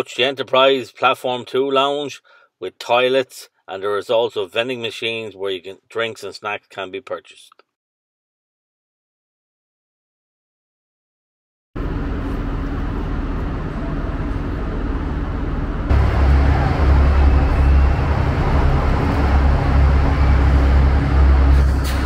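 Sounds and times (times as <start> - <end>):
diesel locomotive idling: 11.8 - 22.0
room tone in station hall: 11.8 - 22.0.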